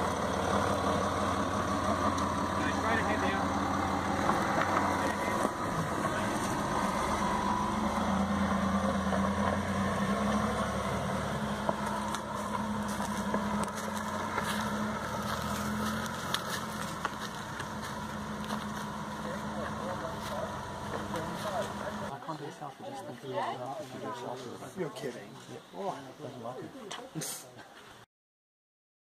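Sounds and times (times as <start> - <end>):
engine running at low revs: 0.0 - 22.2.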